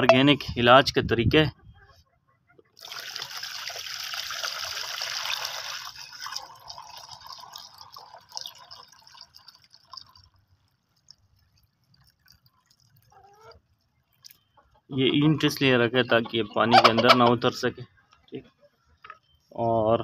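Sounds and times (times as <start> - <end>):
water pouring into plastic tub: 2.8 - 14.3
water dripping: 2.8 - 14.6.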